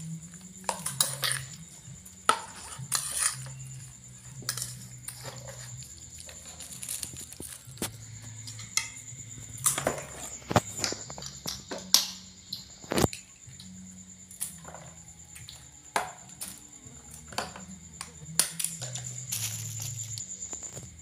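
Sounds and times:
metal spoon scraping ceramic bowl: 2.3 - 3.8.

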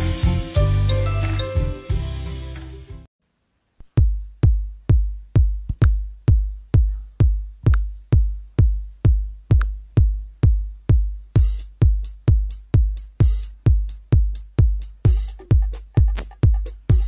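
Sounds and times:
electronic dance music: 0.0 - 3.1, 11.4 - 17.0
deep kick drum: 4.0 - 17.0.

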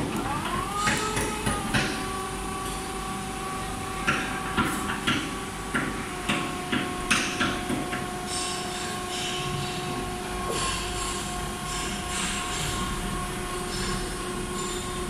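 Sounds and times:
hydraulic pump motor whining: 0.0 - 6.2
sharp knocks and clanks: 4.0 - 13.0.

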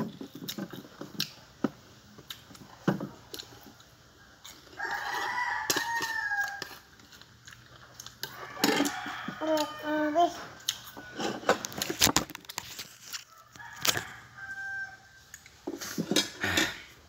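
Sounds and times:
rooster crowing: 4.8 - 6.9, 8.3 - 10.2, 13.3 - 15.2.

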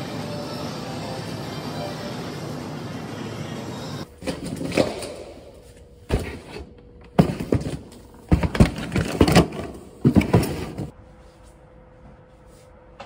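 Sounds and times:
boxes and bottles thudding on tiles: 4.2 - 5.3, 7.2 - 10.9.

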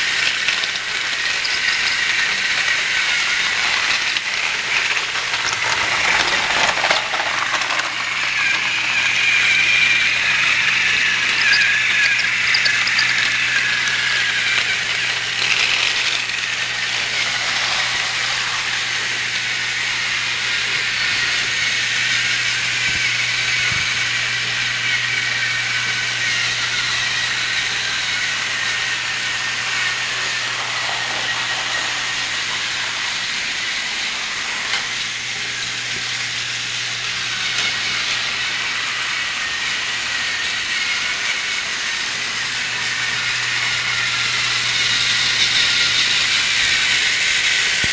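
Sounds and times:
plastic wheels rattling on track: 0.0 - 19.4, 28.4 - 36.1, 43.7 - 47.9
toy train motors whirring: 0.0 - 47.9.

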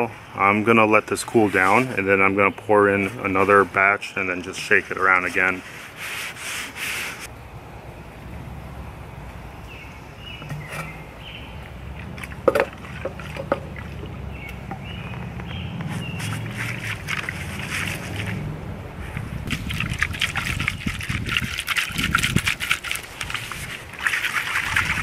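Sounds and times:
sharp knocks: 12.4 - 13.7
liquid wax sloshing in gourd: 19.5 - 25.0.

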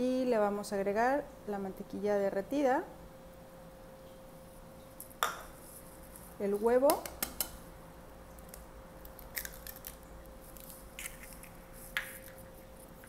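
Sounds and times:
egg cracking on bowl: 5.1 - 5.6, 6.9 - 7.6, 8.4 - 12.4.

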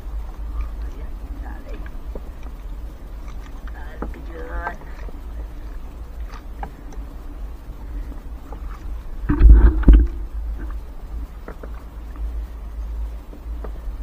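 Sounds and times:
thumps on a boat: 9.2 - 10.2.

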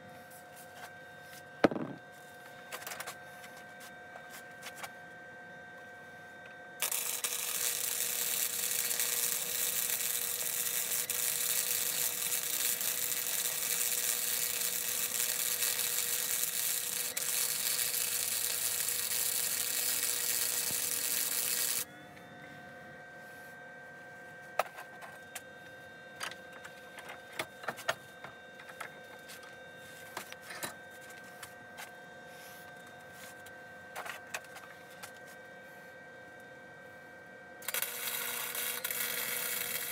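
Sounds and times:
welding arc hissing: 6.8 - 21.8.

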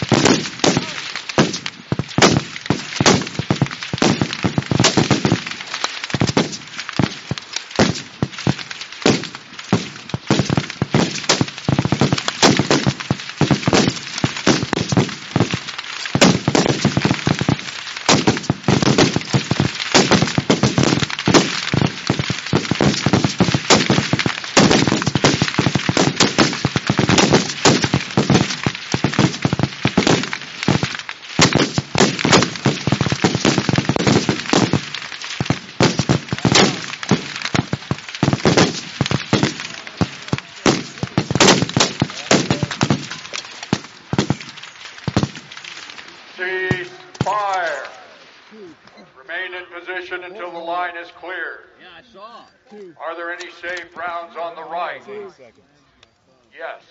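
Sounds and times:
rifle shots: 0.0 - 48.2.

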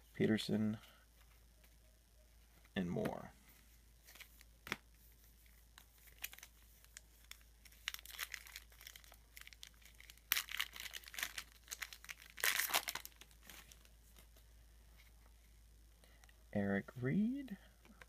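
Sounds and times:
foil wrapper crinkling and tearing: 5.7 - 13.9.

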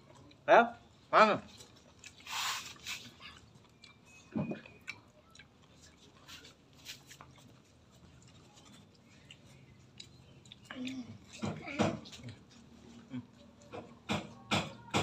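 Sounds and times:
person chewing and crunching food: 0.0 - 14.5
short breathy hiss: 2.2 - 3.0.

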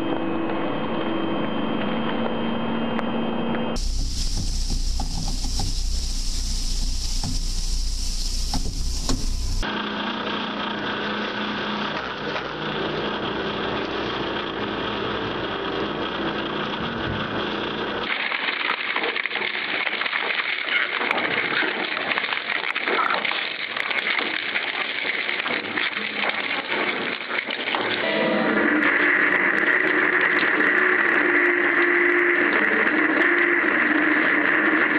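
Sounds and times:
motor hum: 0.0 - 18.1
shredder grinding metal: 3.8 - 18.1, 24.2 - 34.9.

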